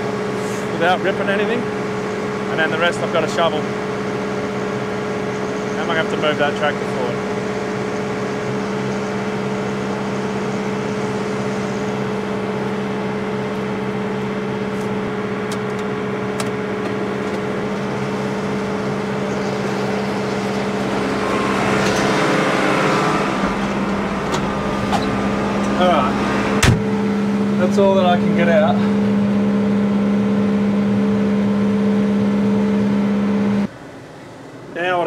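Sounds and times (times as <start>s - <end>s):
tractor engine running: 0.0s - 33.9s.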